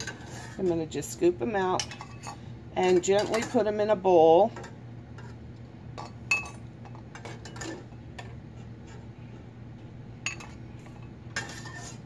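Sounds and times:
low steady hum: 0.0s - 12.0s
metal spoon clinking on dishes: 1.8s - 3.6s, 6.0s - 8.3s, 10.2s - 10.6s.

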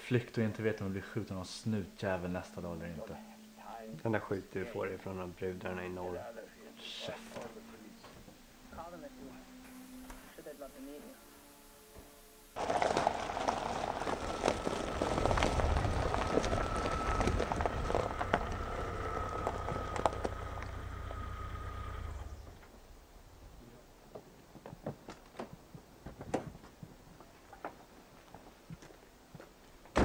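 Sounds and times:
steady high whine: 1.8s - 12.6s, 13.9s - 23.2s
tyres crunching on gravel: 12.6s - 22.6s
car engine running low: 12.6s - 23.1s.

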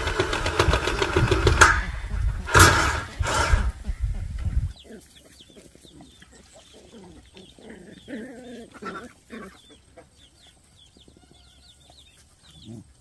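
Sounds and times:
loud machine noise: 0.0s - 3.8s
chickens clucking: 0.1s - 13.0s
small birds chirping: 3.7s - 13.0s.

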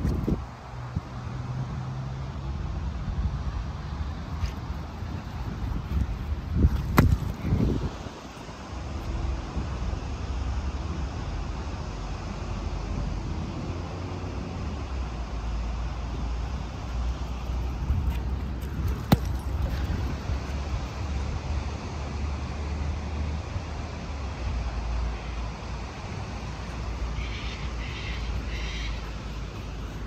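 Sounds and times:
wind rumble on microphone: 0.0s - 15.1s, 16.6s - 25.0s
distant road traffic hum: 0.0s - 30.0s.

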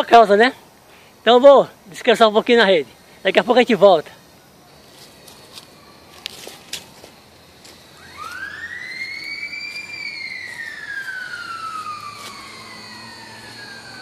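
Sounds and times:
siren wailing: 7.9s - 14.0s.

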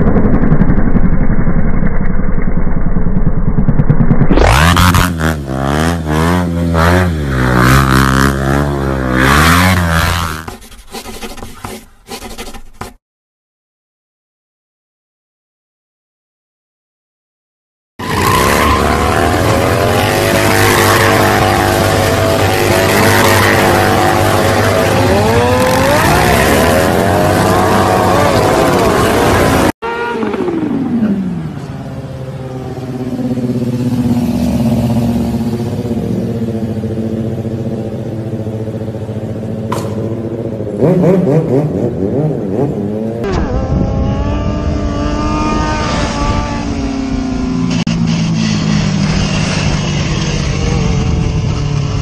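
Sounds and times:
motorcycle engines revving: 3.6s - 10.5s, 18.0s - 52.0s.

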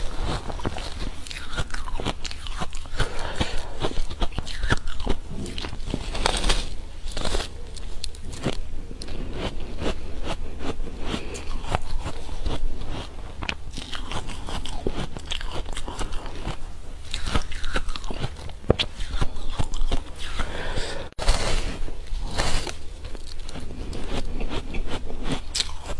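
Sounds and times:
ice crunching between teeth: 0.0s - 21.4s, 22.2s - 25.9s.

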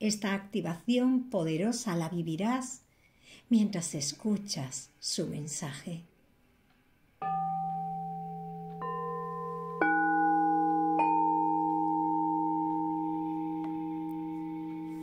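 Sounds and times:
singing bowls ringing: 7.2s - 15.0s
low steady drone: 8.0s - 15.0s.

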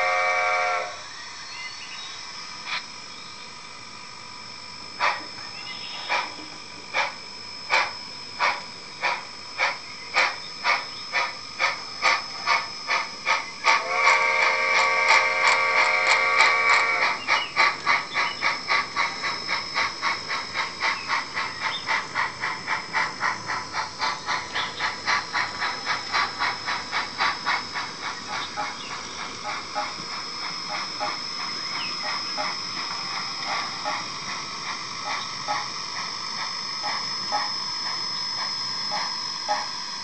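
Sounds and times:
steam whistle blast: 0.0s - 1.1s, 13.7s - 17.2s
steam locomotive chuffs: 0.0s - 1.5s, 3.8s - 40.0s.

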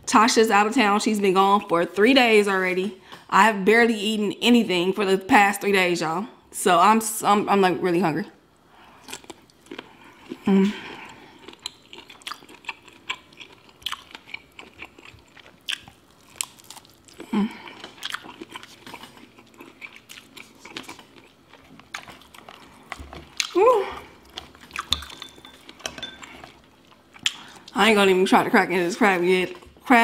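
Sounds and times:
chewing and lip smacking: 9.0s - 10.4s, 11.0s - 23.6s, 24.2s - 27.7s.

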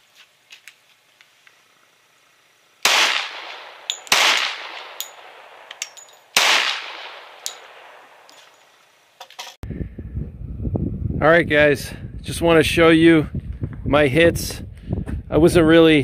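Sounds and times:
pistol shots with echo: 2.8s - 8.3s
light metallic clinks: 3.8s - 4.2s, 4.9s - 6.4s, 7.4s - 9.6s.

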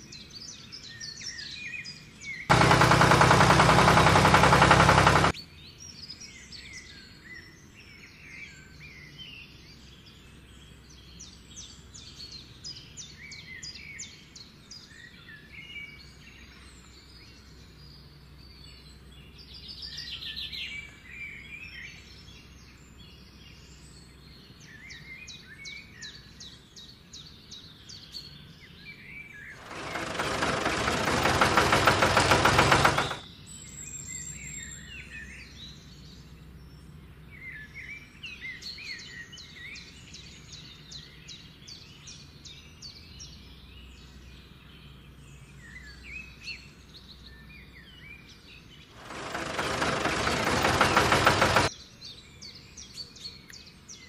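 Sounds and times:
birds chirping and trilling: 0.0s - 54.0s
loud rasping noise: 2.5s - 5.4s, 29.6s - 33.2s, 49.0s - 51.7s.

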